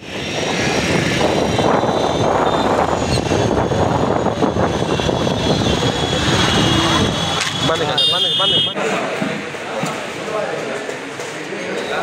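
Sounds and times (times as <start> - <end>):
wind noise on microphone: 0.0 - 7.7
motorcycle engines rumbling: 0.0 - 12.0
street traffic: 0.0 - 12.0.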